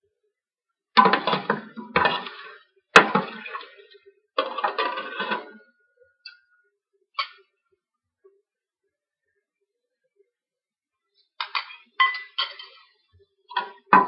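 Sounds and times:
ladle scraping metal pot: 0:01.0 - 0:05.7, 0:11.4 - 0:14.0.

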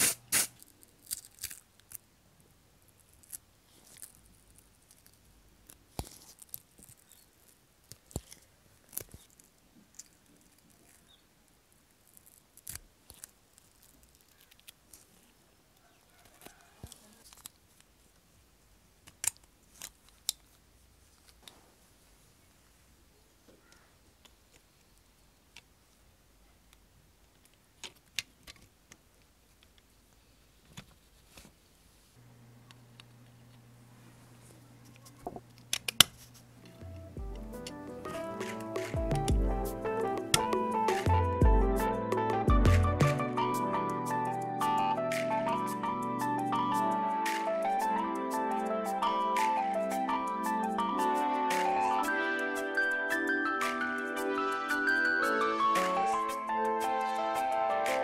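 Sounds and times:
plastic film crinkling: 0:00.0 - 0:02.0, 0:02.9 - 0:15.4
steady low hum: 0:32.2 - 0:40.3.

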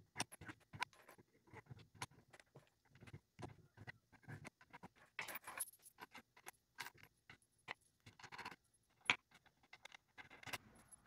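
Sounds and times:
metal washers and wing nuts clinking: 0:10.4 - 0:11.0.

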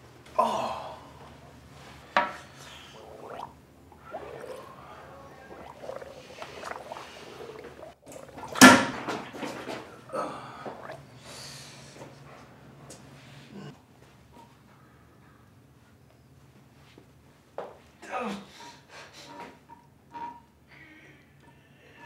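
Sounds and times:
wet flatulence noises: 0:02.4 - 0:10.1, 0:10.7 - 0:11.0.

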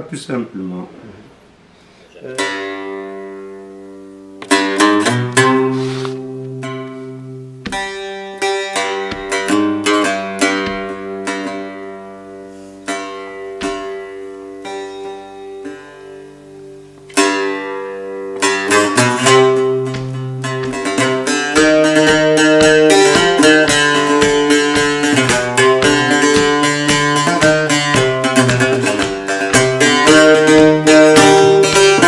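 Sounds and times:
mandole plucked notes: 0:02.2 - 0:32.0.

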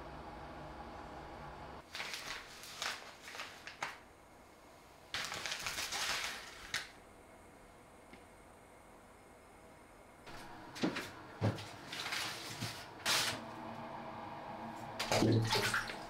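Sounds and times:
steady low hum: 0:00.0 - 0:01.8, 0:07.0 - 0:16.0
paper bag crinkling: 0:01.8 - 0:04.0, 0:05.2 - 0:06.9, 0:11.7 - 0:13.4.

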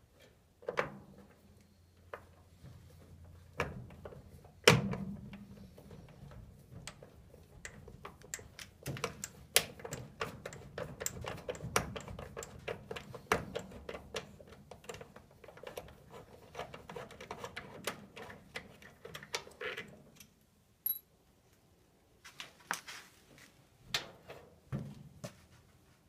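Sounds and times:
hands clicking and tapping on parts: 0:03.6 - 0:19.6.

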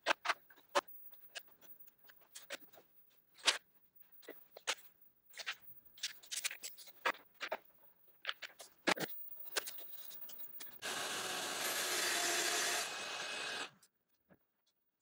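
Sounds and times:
track saw cutting: 0:10.8 - 0:13.8.

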